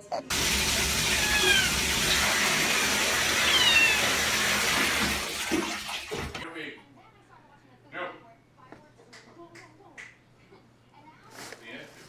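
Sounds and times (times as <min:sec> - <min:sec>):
toilet water rushing: 0:00.3 - 0:06.4
cat meowing: 0:01.0 - 0:02.2, 0:03.3 - 0:04.3.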